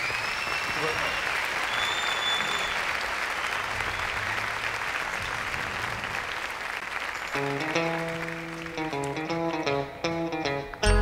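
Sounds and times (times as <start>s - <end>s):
high whistle: 0.0s - 2.9s
audience applauding: 0.0s - 9.8s.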